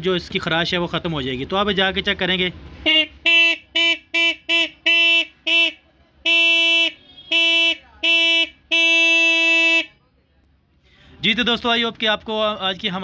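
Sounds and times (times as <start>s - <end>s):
motorcycle horn beeping: 2.8s - 9.9s.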